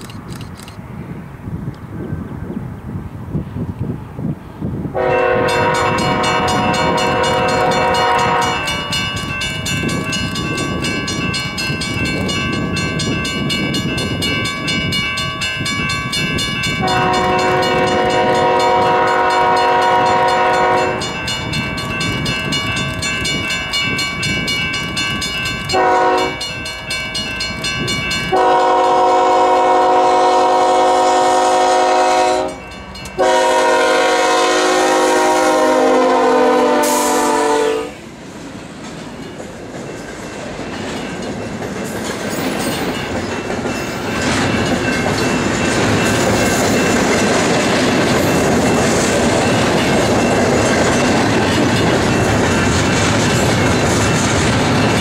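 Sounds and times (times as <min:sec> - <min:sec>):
train rail noise: 0:00.0 - 0:55.0
locomotive air horn blasts: 0:04.9 - 0:09.0, 0:16.8 - 0:21.2, 0:25.7 - 0:26.4, 0:28.3 - 0:32.6, 0:33.2 - 0:38.0.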